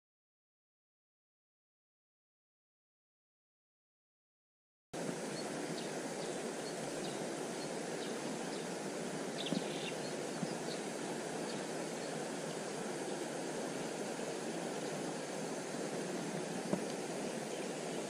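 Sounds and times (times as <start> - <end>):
fast-flowing stream water: 5.0 - 18.0.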